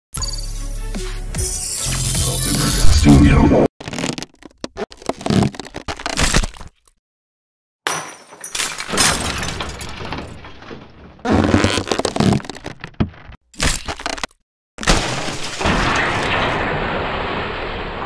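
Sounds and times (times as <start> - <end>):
glass bottle breaking: 7.9 - 11.7
slab bursting with crumbling debris: 8.9 - 14.0, 14.8 - 18.0.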